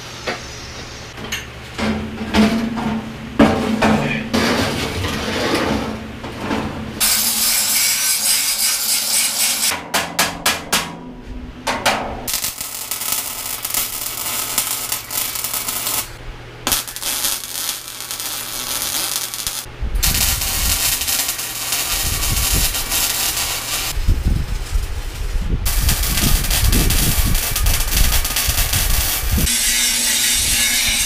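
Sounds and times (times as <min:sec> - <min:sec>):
welding arc crackling: 0:07.0 - 0:09.7, 0:12.3 - 0:31.0
steady low hum: 0:09.8 - 0:29.6.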